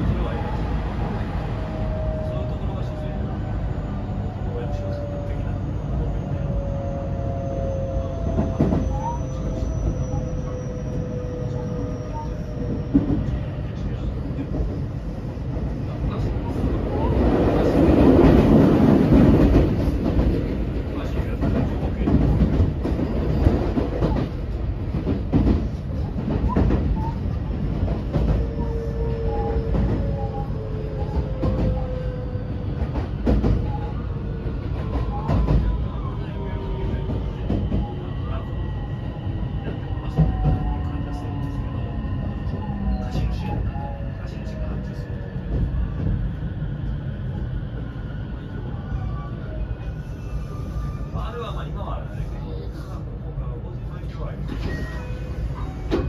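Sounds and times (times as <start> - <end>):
wheels rumbling on rail: 0.0 - 56.0.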